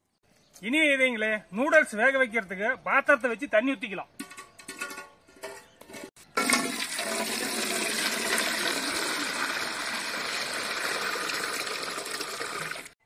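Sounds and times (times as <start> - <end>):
water pouring into metal pot: 6.3 - 13.0.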